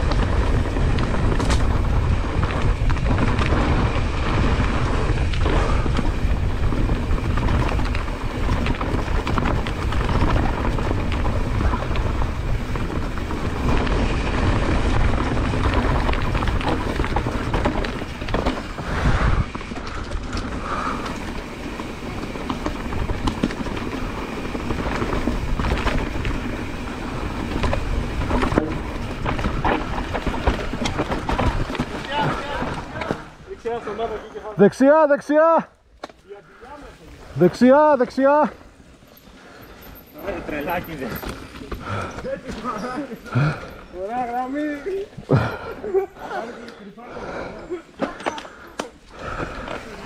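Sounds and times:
wind rumbling on microphone: 0.0 - 33.6
bike rattling over bumps: 0.0 - 34.2, 35.9 - 50.0
bike tyres rolling on dirt: 0.0 - 50.0.

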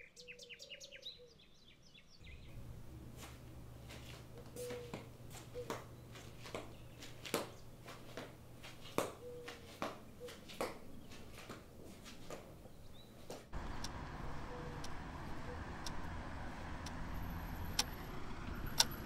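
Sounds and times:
low steady hum: 2.2 - 8.6, 13.6 - 18.4
sharp clicks and ticks: 13.6 - 19.0.

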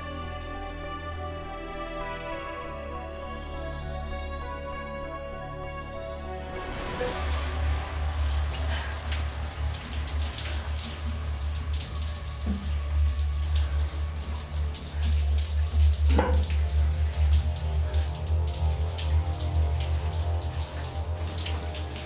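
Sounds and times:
low rumble: 6.6 - 14.1
shower water spraying: 6.6 - 22.0.

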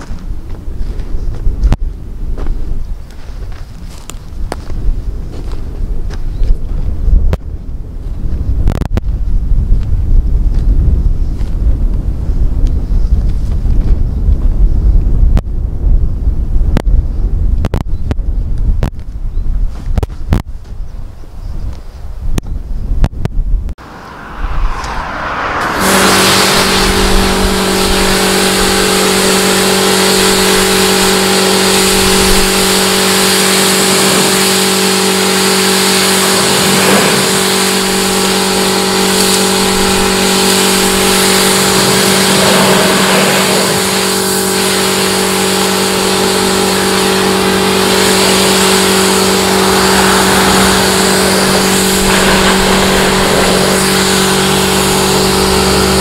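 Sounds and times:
loud hiss: 23.8 - 56.0
motor humming: 23.8 - 56.0.

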